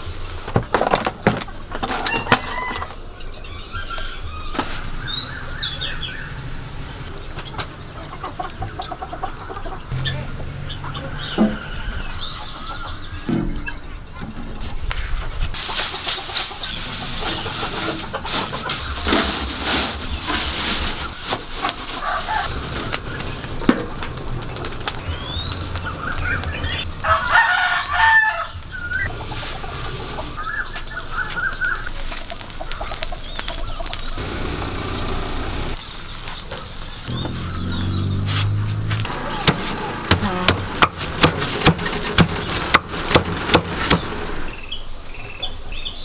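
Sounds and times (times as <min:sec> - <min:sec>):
chickens clucking: 0:06.8 - 0:25.0, 0:25.6 - 0:44.5
straw burning and crackling: 0:14.7 - 0:44.7
rooster crowing: 0:21.9 - 0:22.6, 0:27.0 - 0:28.6.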